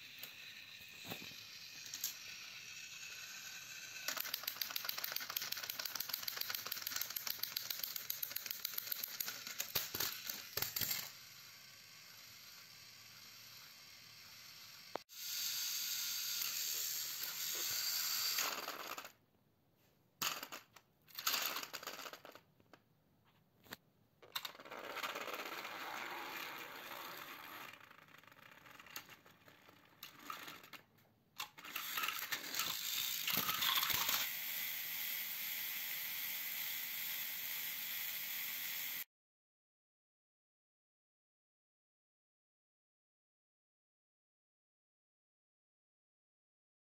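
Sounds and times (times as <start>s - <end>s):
toy trains clattering onto floor: 0.0s - 11.2s, 20.2s - 22.8s, 24.2s - 34.3s
toy trains whirring and rattling: 0.0s - 19.2s, 20.2s - 22.4s, 24.2s - 39.1s.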